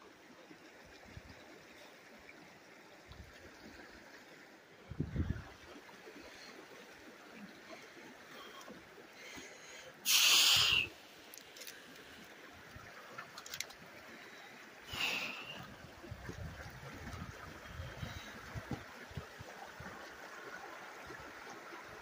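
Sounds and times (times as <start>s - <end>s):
creek trickling over rocks: 0.0s - 22.0s
short hissing sounds: 10.0s - 11.0s.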